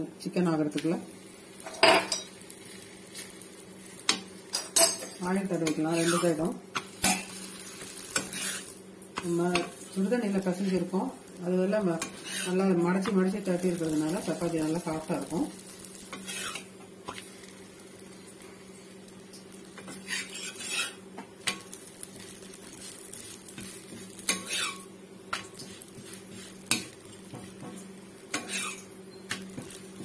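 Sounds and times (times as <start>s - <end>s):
metal spatula scraping iron pan: 5.8s - 6.3s, 12.0s - 12.6s, 16.1s - 16.7s, 19.9s - 21.0s, 24.3s - 24.8s, 28.3s - 28.8s.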